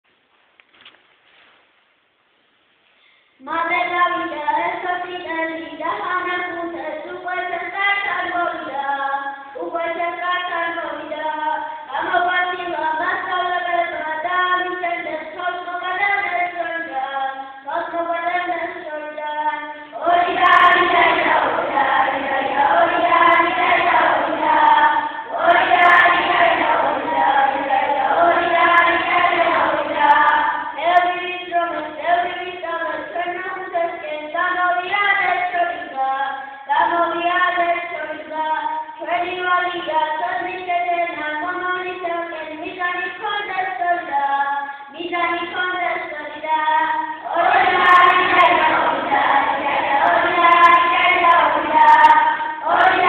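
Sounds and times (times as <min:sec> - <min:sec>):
children singing: 0:20.0 - 0:32.6, 0:46.6 - 0:53.0.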